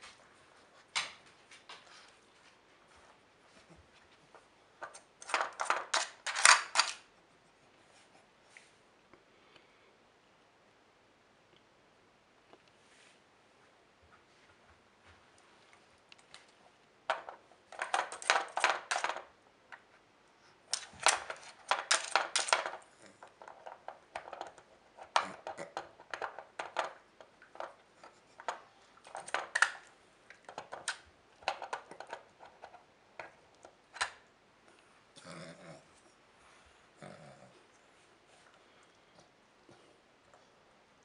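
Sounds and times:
plastic puzzle pieces clattering: 0:04.8 - 0:07.0, 0:17.1 - 0:19.3, 0:20.7 - 0:33.3.

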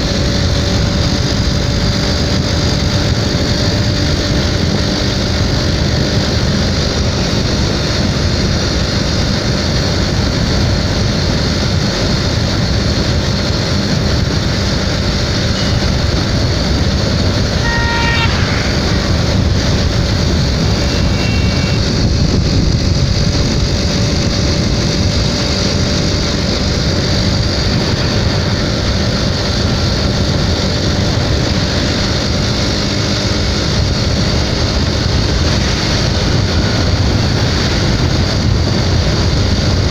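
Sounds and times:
motorcycle engine running: 0:00.0 - 0:39.9
wind and road noise: 0:00.0 - 0:39.9
vehicle horn beep: 0:15.4 - 0:22.2.

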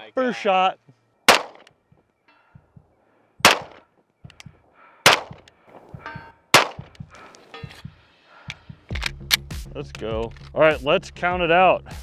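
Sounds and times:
pistol shots: 0:01.3 - 0:01.7, 0:03.4 - 0:03.9, 0:05.0 - 0:05.9, 0:06.5 - 0:07.0
faint metallic target ring: 0:05.3 - 0:08.2.

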